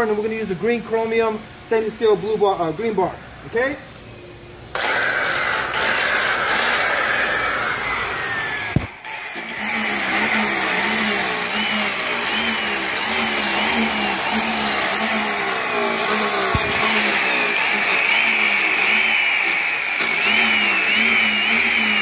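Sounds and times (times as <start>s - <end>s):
electric polisher whining: 4.7s - 22.0s.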